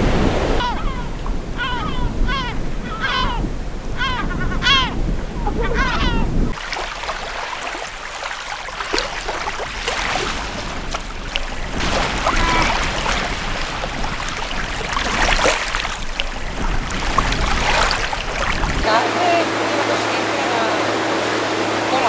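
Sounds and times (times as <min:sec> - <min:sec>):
water lapping at shoreline: 0:00.0 - 0:22.0
small splashes: 0:06.5 - 0:22.0.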